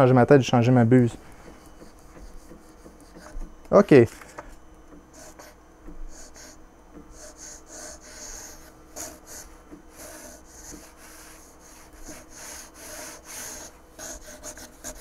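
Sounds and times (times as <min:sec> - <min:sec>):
paper rubbing under printer nozzle: 0:01.4 - 0:03.5, 0:05.1 - 0:15.0.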